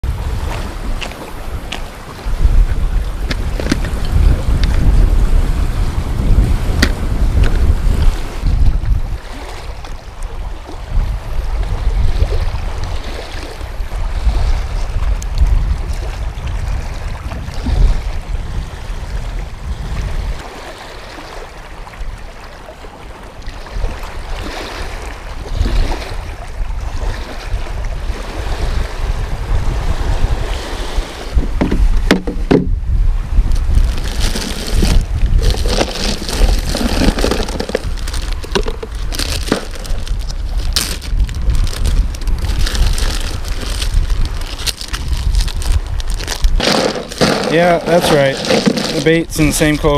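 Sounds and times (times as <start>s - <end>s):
wind buffeting microphone: 0.0s - 22.4s, 23.4s - 49.9s
waves splashing against rocks: 23.2s - 49.9s
rustling of bait bag: 33.4s - 49.3s
fishing tackle clicks: 33.5s - 49.1s.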